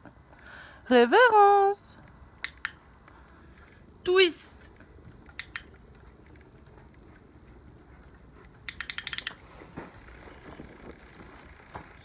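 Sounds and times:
dog claws clicking on wood: 8.4s - 9.4s.

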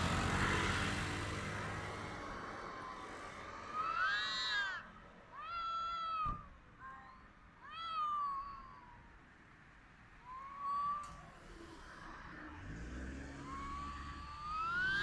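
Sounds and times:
cat yowling: 2.6s - 9.1s, 13.4s - 15.0s.

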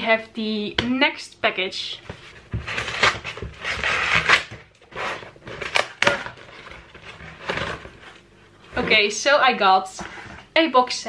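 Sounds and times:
paper envelope tearing: 2.7s - 8.1s.

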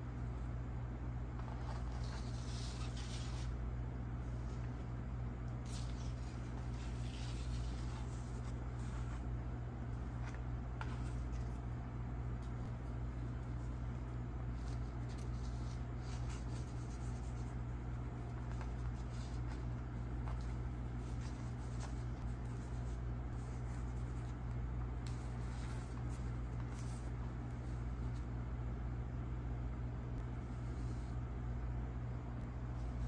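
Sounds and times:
steady low hum: 0.0s - 33.0s
paper rustling on a table: 5.6s - 9.2s.

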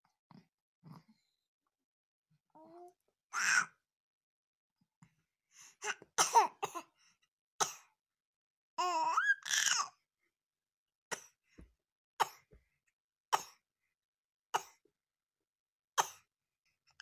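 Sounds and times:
baby voice: 2.6s - 3.8s, 8.8s - 10.0s
baby coughing: 5.8s - 6.9s, 7.6s - 7.9s, 12.2s - 12.5s, 13.3s - 13.6s, 14.6s - 14.8s, 16.0s - 16.3s.

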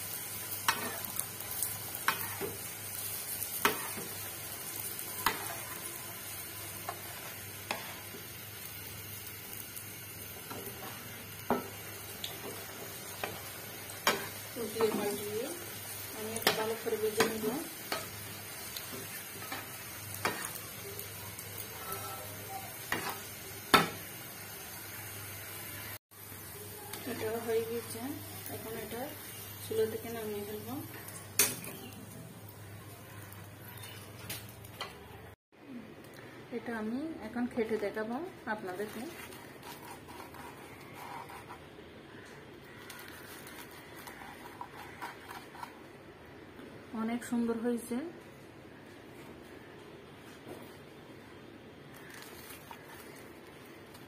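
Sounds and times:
flatbread sizzling in hot oil: 0.0s - 34.8s, 51.9s - 54.0s
knife crunching through flatbread: 38.9s - 41.6s, 42.7s - 45.8s, 51.9s - 54.0s.

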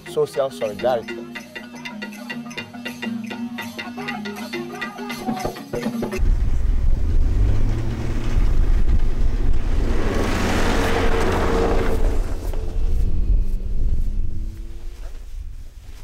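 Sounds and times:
xylophone and drum music: 0.0s - 6.2s
snow blower rumbling: 6.2s - 15.6s.

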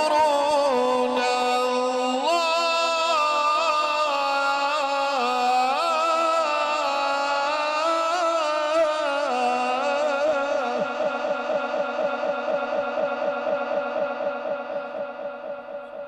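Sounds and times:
man chanting into a microphone: 0.0s - 15.2s.

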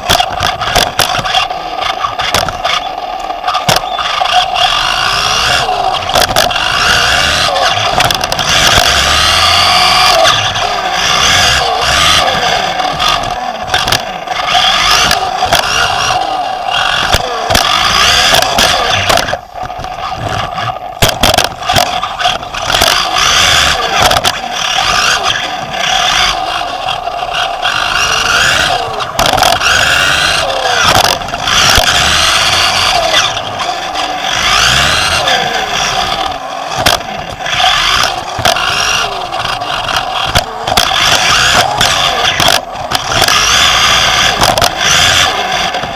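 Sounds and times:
knocks and scrapes from landings: 0.0s - 4.5s, 5.6s - 33.5s
rc car electric motor whine: 0.0s - 45.9s.

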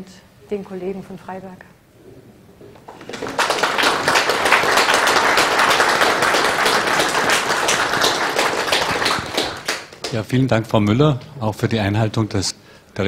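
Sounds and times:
audience applauding: 2.8s - 10.4s.

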